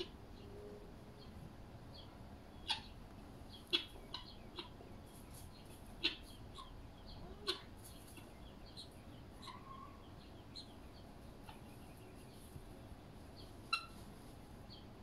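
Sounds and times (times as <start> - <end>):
guinea fowl clucking: 0.0 - 1.3, 2.0 - 12.6, 13.3 - 15.0.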